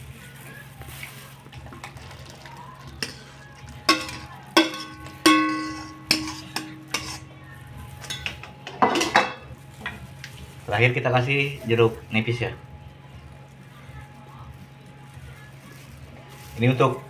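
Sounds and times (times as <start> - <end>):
metal ladle clanking against wok: 3.0 - 7.3, 8.0 - 10.0.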